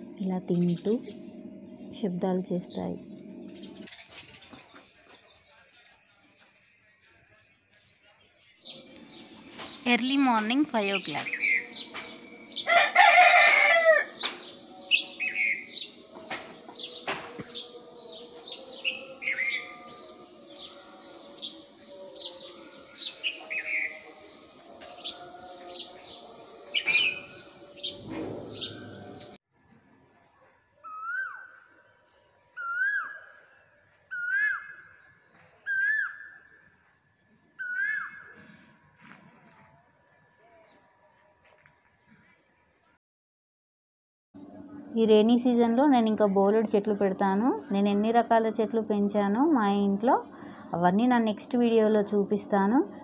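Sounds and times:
birds chirping and calling: 0:00.0 - 0:29.4, 0:32.6 - 0:36.6, 0:37.6 - 0:38.6.

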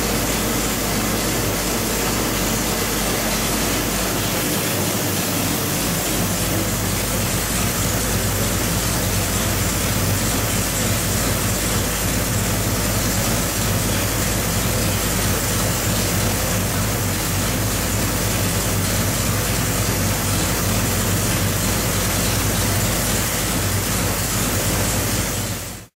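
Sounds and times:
loud rushing noise: 0:00.0 - 0:14.4
engine running at steady speed: 0:00.0 - 0:25.9.

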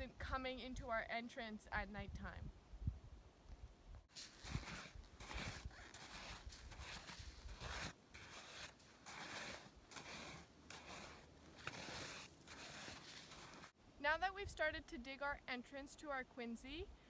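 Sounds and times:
plastic frisbee scraping hard snow: 0:04.1 - 0:13.7.

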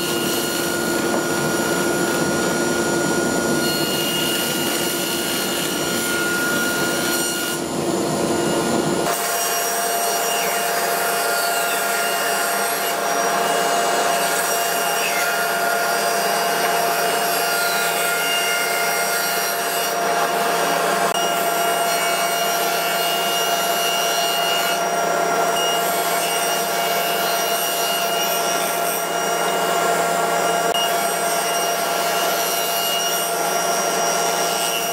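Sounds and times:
dust collector humming: 0:00.0 - 0:09.4
table saw whirring: 0:00.0 - 0:34.9.

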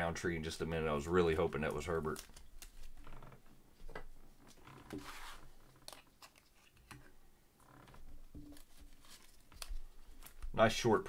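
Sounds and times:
plastic sleeve rustling: 0:00.9 - 0:07.0, 0:08.0 - 0:10.8
trading cards crinkling and clicking: 0:01.3 - 0:03.0, 0:03.9 - 0:07.1, 0:08.4 - 0:10.6.

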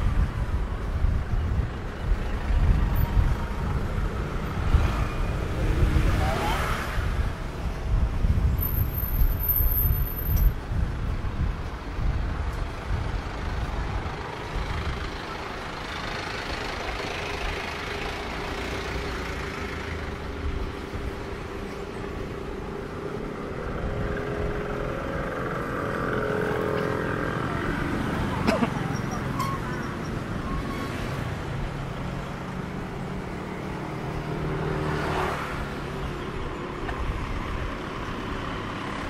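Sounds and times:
vehicles passing: 0:00.0 - 0:39.0
steady engine hum: 0:10.7 - 0:30.5.

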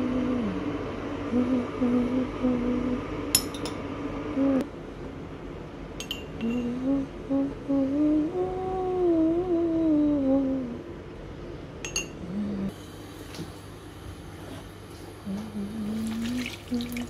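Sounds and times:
person humming a tune: 0:00.0 - 0:03.1, 0:04.4 - 0:04.7, 0:06.4 - 0:10.8, 0:12.2 - 0:12.8, 0:15.2 - 0:17.0.

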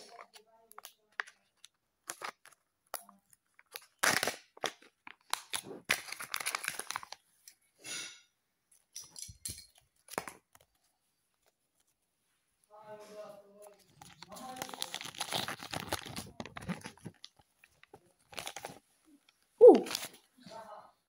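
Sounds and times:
wrapper crinkling and tearing: 0:00.0 - 0:07.3, 0:09.9 - 0:10.8, 0:13.6 - 0:20.3.

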